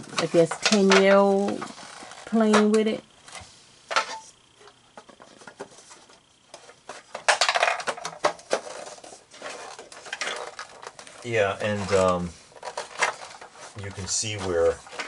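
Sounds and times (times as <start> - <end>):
plastic panels clicking and clattering: 4.9 - 11.2.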